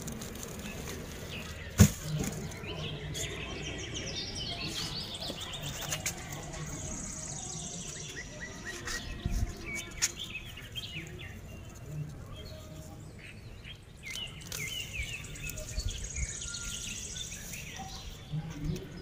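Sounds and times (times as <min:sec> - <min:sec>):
plants and soil rustling: 0:00.0 - 0:19.0
small birds chirping: 0:00.0 - 0:19.0.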